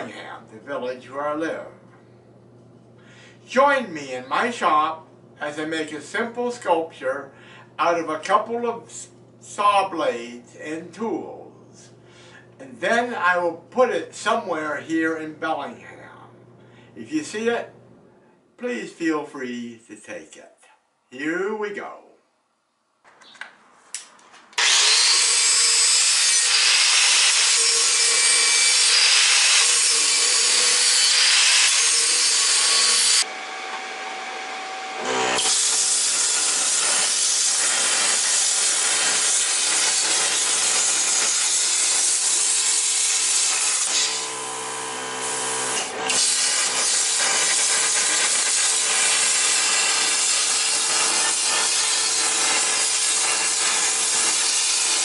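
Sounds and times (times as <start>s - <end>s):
power tool hissing: 24.6s - 55.0s.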